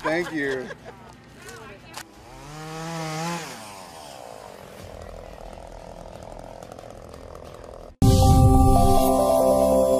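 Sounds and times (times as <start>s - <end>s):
chainsaw revving: 2.0s - 8.0s.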